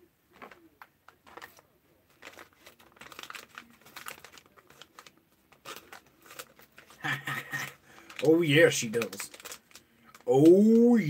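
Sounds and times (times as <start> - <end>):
hands crinkling and rustling: 0.3 - 11.0.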